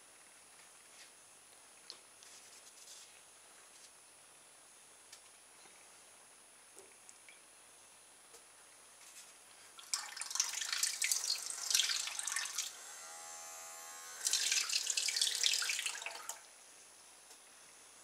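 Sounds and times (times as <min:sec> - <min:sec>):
motor whine: 0:11.2 - 0:15.2.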